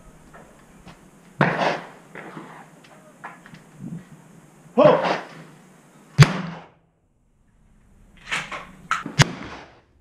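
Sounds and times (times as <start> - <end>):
shotgun shots: 6.2 - 6.8, 9.0 - 9.8.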